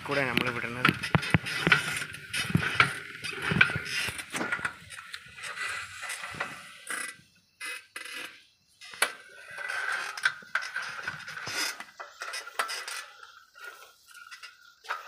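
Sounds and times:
bicycle scraping through undergrowth: 0:00.0 - 0:15.0.

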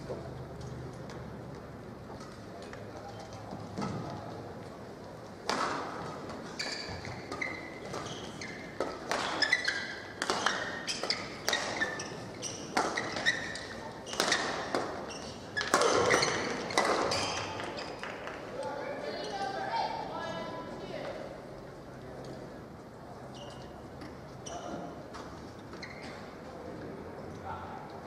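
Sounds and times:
shoes squeaking on court mat: 0:06.3 - 0:18.2, 0:23.3 - 0:26.3.

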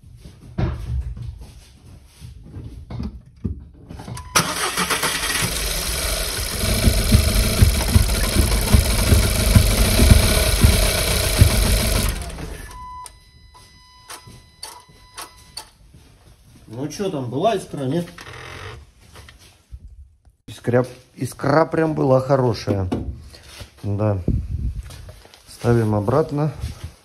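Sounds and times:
engine starting: 0:04.2 - 0:12.9
car engine cranking: 0:04.2 - 0:13.2
faint steady beep: 0:12.6 - 0:15.7.

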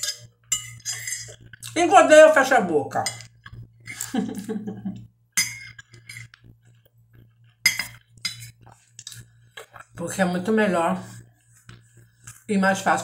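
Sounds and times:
fork clinking on glass plate: 0:00.0 - 0:01.4, 0:05.4 - 0:06.4, 0:07.7 - 0:08.5.

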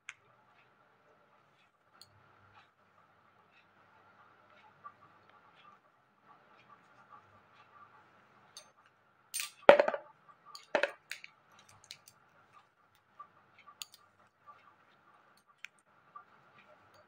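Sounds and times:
bangles clicking and clinking: 0:09.4 - 0:12.2
comb brushing knocks: 0:09.7 - 0:10.1, 0:10.7 - 0:11.0.

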